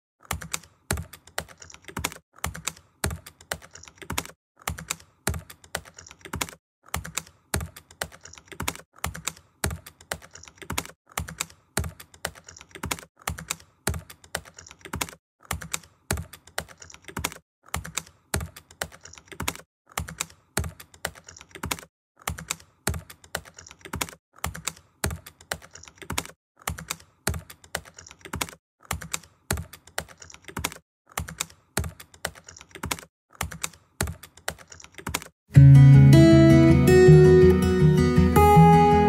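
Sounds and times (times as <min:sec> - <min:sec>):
acoustic guitar music: 0:35.5 - 0:39.0.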